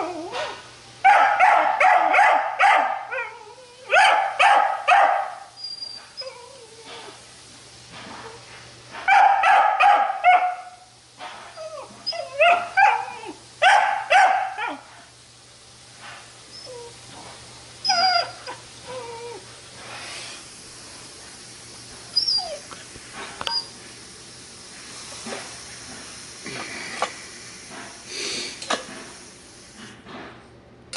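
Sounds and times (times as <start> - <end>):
dog yelping and whining: 0.0 - 0.6, 2.8 - 4.3, 5.0 - 7.2, 11.5 - 13.4, 16.5 - 17.0, 17.8 - 19.5, 22.1 - 22.8, 23.5 - 23.8.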